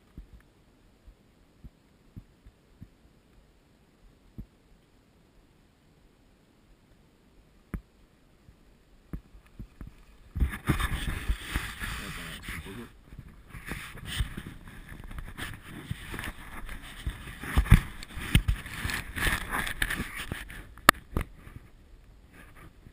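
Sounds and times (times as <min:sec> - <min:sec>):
skis scraping over snow: 0:09.6 - 0:20.7.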